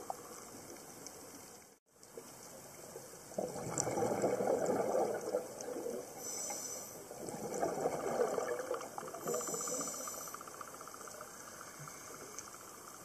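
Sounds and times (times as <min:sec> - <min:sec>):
low underwater hiss: 0:00.0 - 0:13.0
regulator bubbles rushing: 0:03.4 - 0:06.2, 0:07.1 - 0:09.6.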